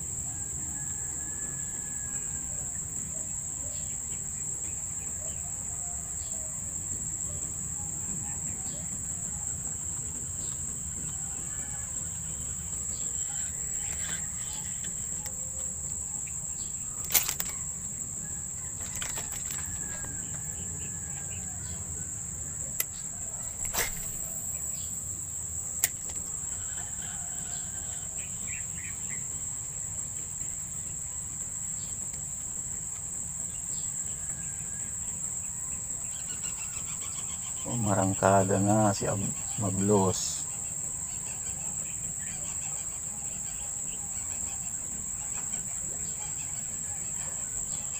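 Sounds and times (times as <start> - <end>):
crickets chirping: 0.0 - 47.9
sharp clicks: 17.0 - 17.6.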